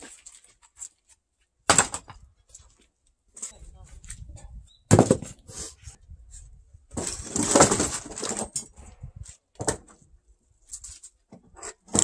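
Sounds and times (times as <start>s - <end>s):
wood scraping and clattering: 6.9s - 10.0s, 10.6s - 12.0s.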